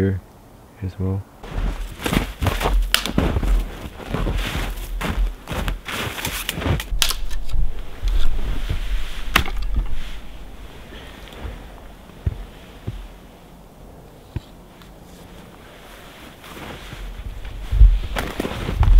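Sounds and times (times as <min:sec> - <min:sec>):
boots crunching through snow: 0:01.4 - 0:06.9, 0:07.6 - 0:13.3, 0:15.2 - 0:18.9
sharp clicks and snaps: 0:06.2 - 0:07.6
wind rumbling on microphone: 0:06.6 - 0:14.7, 0:15.4 - 0:18.9.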